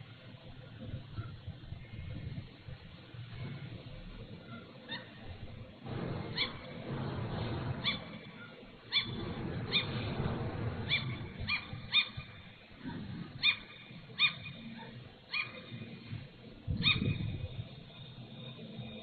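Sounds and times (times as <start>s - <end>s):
low steady rumble: 0.0s - 19.0s
gull yelping calls: 6.3s - 6.7s, 7.8s - 10.0s, 10.8s - 12.4s, 13.4s - 15.8s, 16.7s - 17.3s.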